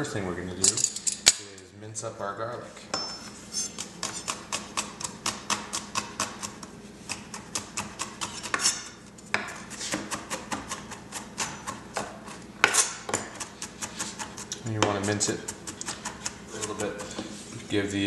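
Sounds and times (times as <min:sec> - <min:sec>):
knife chopping on wooden board: 0:04.0 - 0:17.3.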